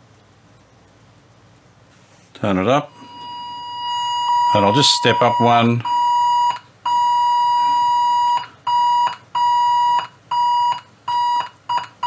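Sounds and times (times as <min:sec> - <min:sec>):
steady test tone from radio: 0:02.8 - 0:11.4.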